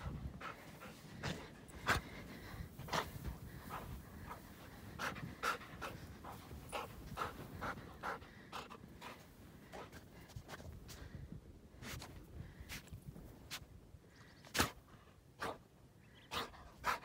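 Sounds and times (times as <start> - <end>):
dog panting hard: 0.0 - 10.2.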